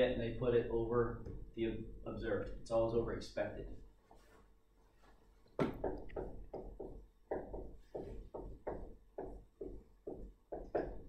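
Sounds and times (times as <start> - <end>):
marker writing on a board: 5.8 - 11.0.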